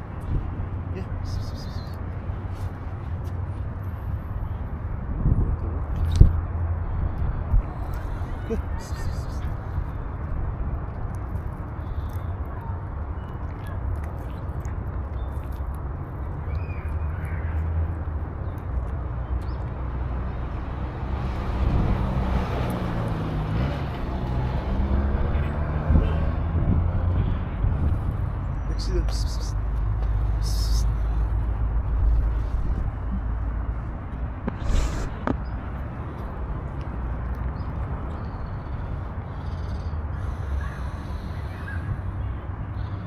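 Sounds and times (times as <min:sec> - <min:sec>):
low rumble of road traffic: 0:00.0 - 0:43.0
faint bird calls: 0:39.3 - 0:42.2.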